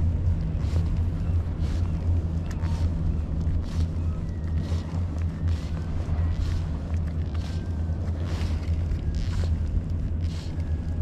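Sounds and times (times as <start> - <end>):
boat motor rumbling: 0.0 - 11.0.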